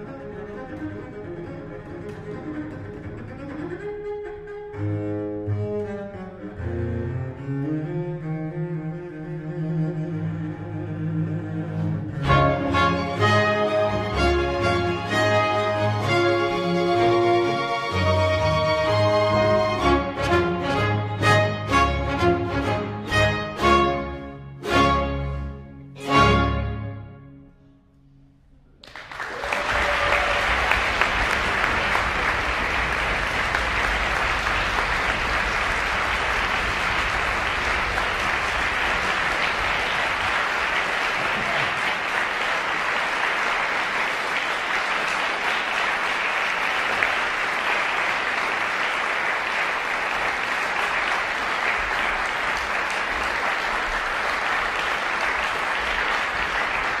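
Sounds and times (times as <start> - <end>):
audience applauding: 28.8 - 57.0.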